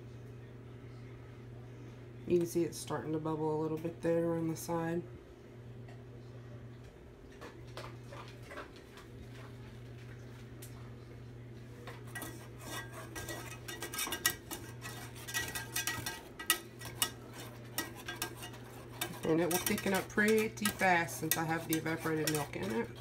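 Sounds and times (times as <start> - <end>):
steady low hum: 0.0 - 23.0
wire whisk scraping a saucepan: 12.0 - 23.0.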